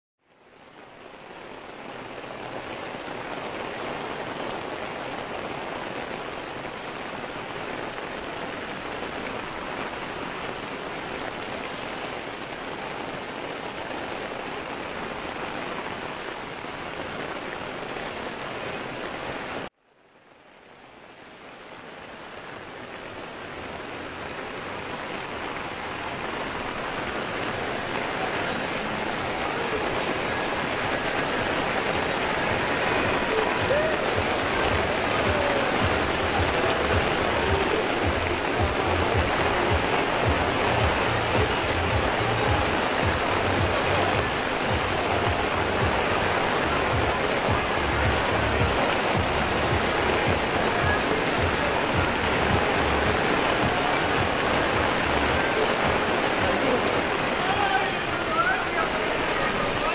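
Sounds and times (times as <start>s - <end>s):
steady rain hiss: 0.2s - 59.9s.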